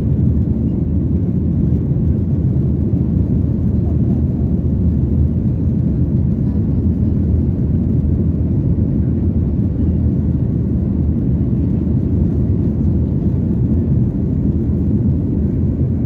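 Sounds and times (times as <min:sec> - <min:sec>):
airplane cabin engine rumble: 0:00.0 - 0:16.0.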